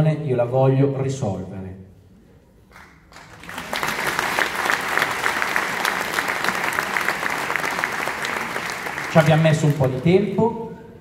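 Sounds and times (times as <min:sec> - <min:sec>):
audience applause: 0:02.8 - 0:10.2.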